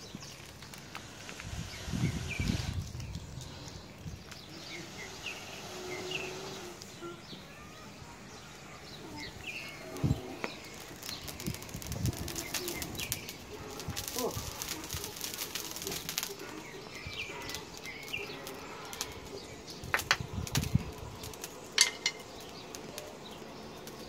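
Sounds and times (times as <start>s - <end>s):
dry grass crackling as it burns: 0.0s - 7.0s, 8.3s - 24.0s
faint bird chirps: 1.6s - 20.0s.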